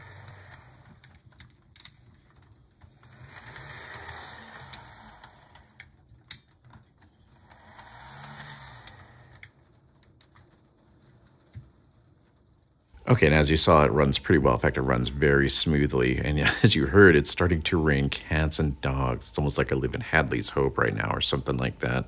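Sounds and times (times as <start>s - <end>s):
model train motor whirring: 0.0s - 1.2s, 3.0s - 6.0s, 7.2s - 9.5s
rain falling: 0.0s - 22.0s
wheels ticking on rail joints: 0.0s - 22.0s.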